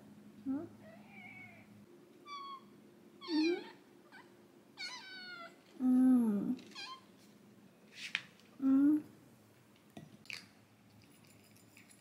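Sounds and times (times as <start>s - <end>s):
cat meowing: 2.3s - 5.6s.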